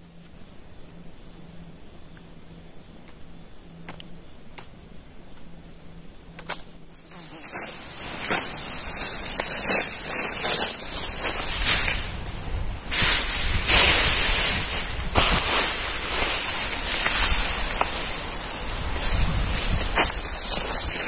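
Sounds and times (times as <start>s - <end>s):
insect buzzing faintly: 0.0s - 21.0s
rustling and scraping noise: 6.5s - 21.0s.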